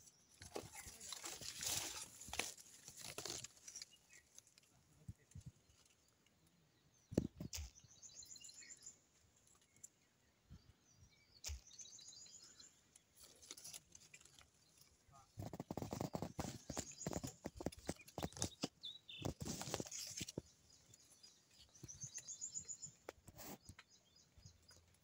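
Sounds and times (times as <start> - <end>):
leaves rustling: 0.3 - 4.7, 13.2 - 22.5.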